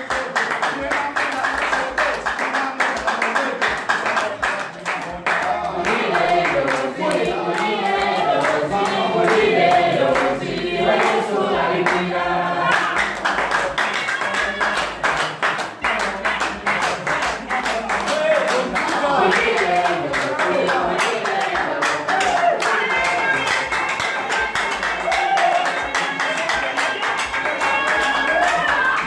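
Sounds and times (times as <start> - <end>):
rhythmic hand-clapping: 0.0 - 29.0
congregation singing: 5.1 - 29.0.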